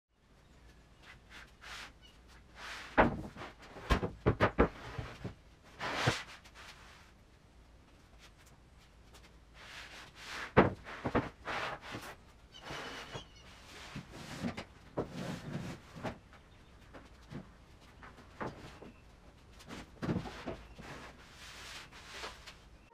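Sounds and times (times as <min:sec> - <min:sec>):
plywood boards thudding: 0:02.9 - 0:05.3, 0:10.5 - 0:11.4.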